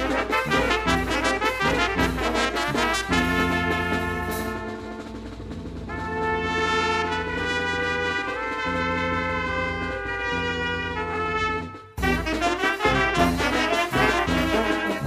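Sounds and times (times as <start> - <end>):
drums and clashed cymbals: 0.0 - 6.6, 11.7 - 15.0
trumpets and tuba chords: 0.0 - 15.0.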